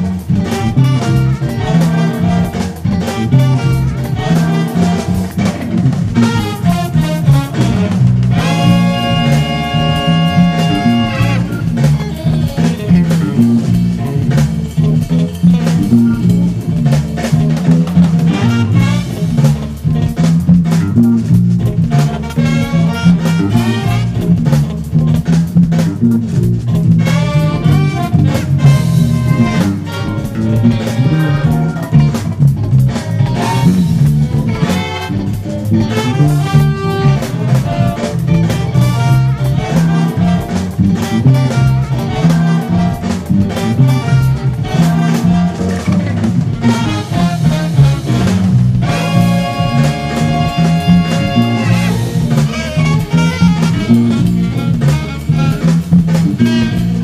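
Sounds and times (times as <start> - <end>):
electric bass line: 0.0 - 57.0
funk music: 0.0 - 57.0
saxophone and brass: 0.0 - 57.0.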